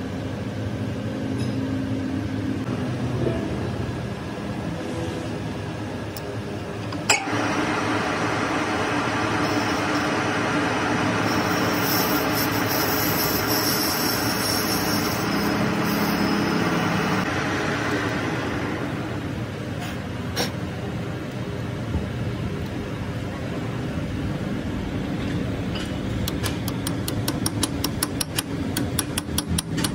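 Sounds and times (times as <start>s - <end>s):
metal lathe cutting: 7.2s - 19.2s
sharp click: 26.2s - 29.9s.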